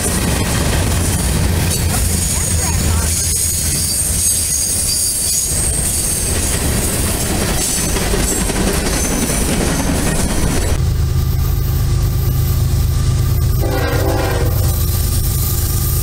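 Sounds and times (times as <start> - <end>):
diesel locomotive approaching: 0.0 - 16.0
freight cars rumbling on rails: 0.0 - 16.0
wheel squeal: 2.2 - 6.5.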